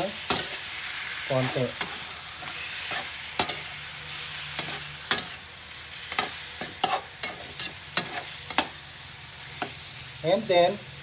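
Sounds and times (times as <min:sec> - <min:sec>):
chicken sizzling in hot oil: 0:00.0 - 0:11.0
metal spatula scraping a wok: 0:00.2 - 0:09.9.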